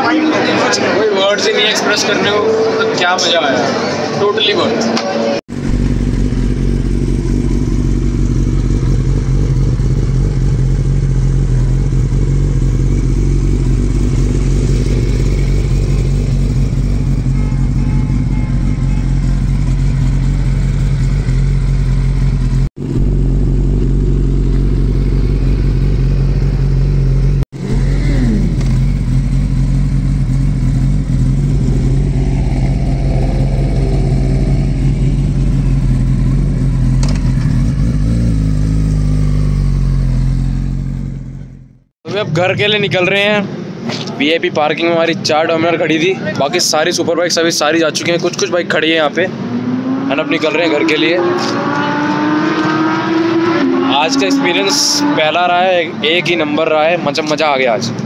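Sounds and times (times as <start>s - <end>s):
motorcycle engine idling: 5.5s - 41.8s
falling whine: 30.3s - 37.4s.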